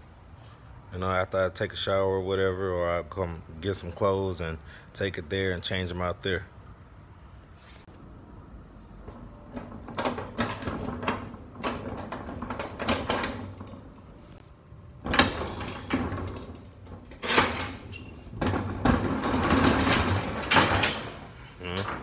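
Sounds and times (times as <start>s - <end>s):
metal roll-up door rattling: 9.0s - 14.2s, 15.0s - 22.0s.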